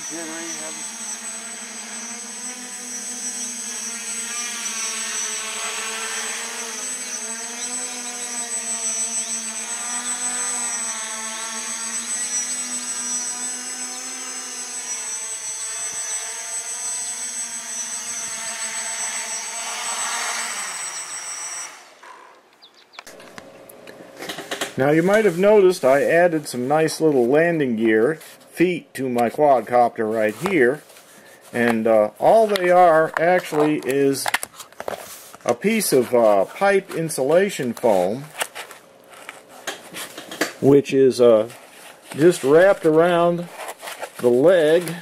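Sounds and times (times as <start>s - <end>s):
high propeller whine: 0.0s - 22.4s
quadcopter motors buzzing: 0.0s - 23.4s.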